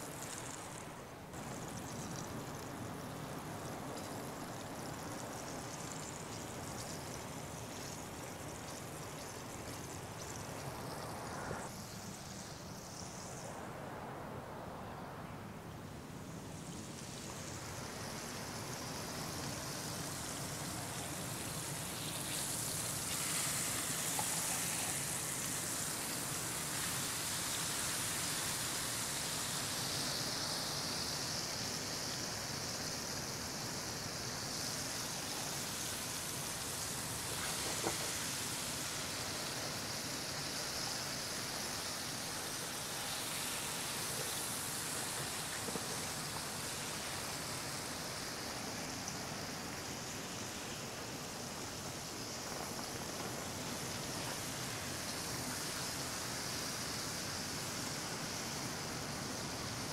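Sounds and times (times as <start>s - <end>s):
fish sizzling in hot oil: 0.0s - 13.4s, 16.6s - 59.9s.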